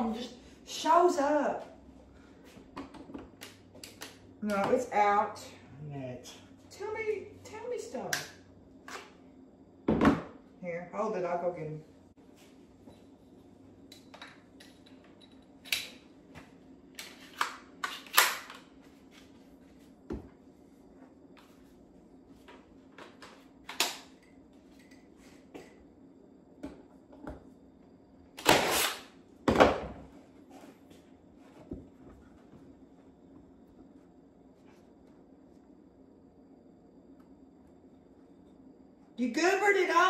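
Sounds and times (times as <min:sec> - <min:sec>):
faint low hum: 0:18.6 - 0:40.0.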